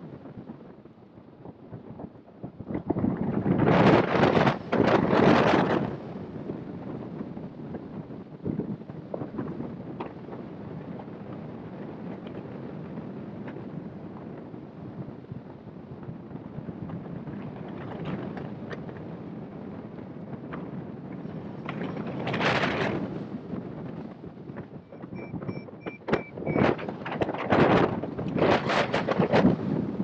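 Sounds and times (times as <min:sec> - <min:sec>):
wind rushing over microphone: 0:00.0 - 0:30.0
short high beeps: 0:25.0 - 0:26.7.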